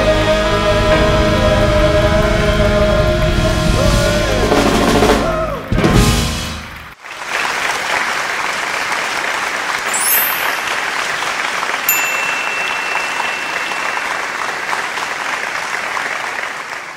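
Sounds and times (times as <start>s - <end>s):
audience applauding: 6.8s - 16.9s.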